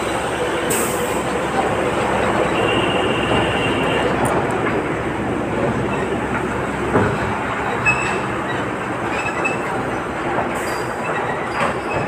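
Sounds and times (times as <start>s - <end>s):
train wheels rumbling on rails: 0.0s - 12.0s
high wheel squeals: 7.7s - 10.0s.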